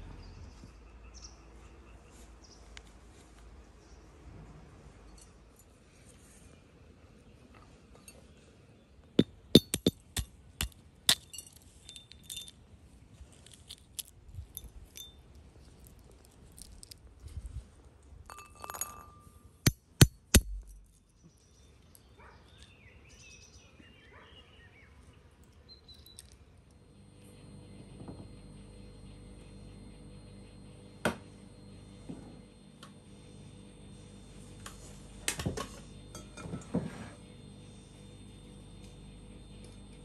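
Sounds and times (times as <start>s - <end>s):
walnuts cracking: 13.4s - 15.0s, 15.7s - 17.1s.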